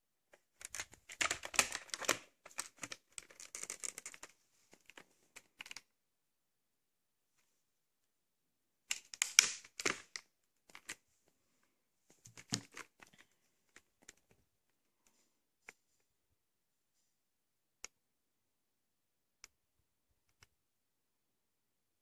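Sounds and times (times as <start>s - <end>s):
plastic case clicks and rustles: 0.6s - 5.8s, 12.2s - 14.4s.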